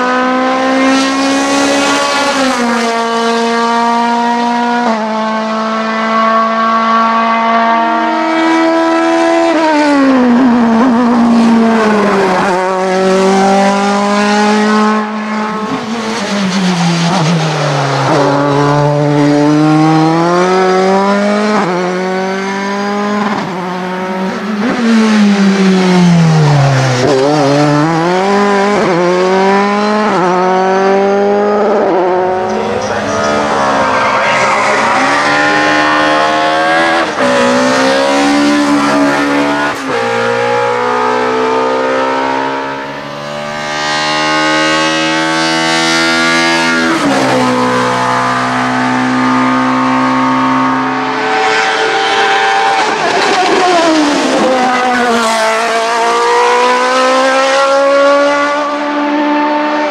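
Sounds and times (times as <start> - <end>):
race car engines at full throttle: 0.0 - 59.9.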